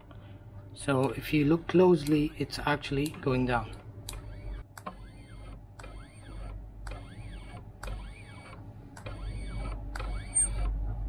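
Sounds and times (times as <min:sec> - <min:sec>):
low steady hum: 0:00.0 - 0:11.0
stepper motor whine: 0:04.1 - 0:10.8.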